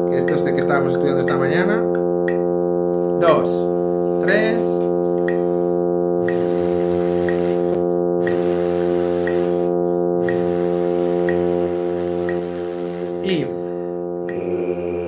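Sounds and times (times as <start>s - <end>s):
electronic drone note: 0.0s - 15.0s
metronome clicking: 0.1s - 3.1s, 6.2s - 12.6s
breathy hiss: 6.2s - 15.0s.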